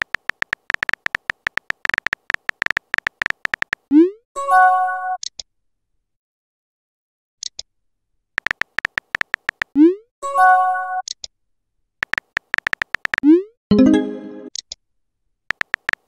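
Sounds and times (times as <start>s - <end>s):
keyboard tap clicks: 0.0s - 3.8s, 8.4s - 9.7s, 12.0s - 13.3s, 15.5s - 16.0s.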